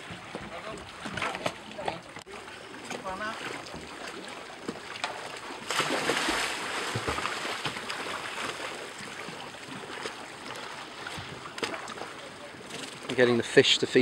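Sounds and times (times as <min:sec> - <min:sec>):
rush of water: 0:00.0 - 0:14.0
water splashing against a boat: 0:00.0 - 0:14.0.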